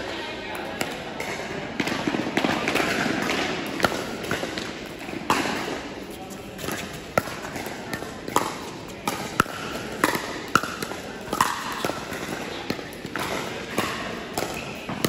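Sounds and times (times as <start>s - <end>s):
ball bouncing on court: 0.6s - 5.8s, 6.6s - 15.0s
paddles striking plastic ball: 6.6s - 15.0s.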